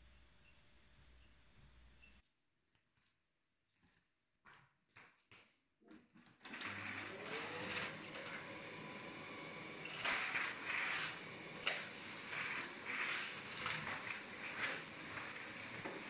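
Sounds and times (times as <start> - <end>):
vacuum cleaner running: 6.5 - 16.0.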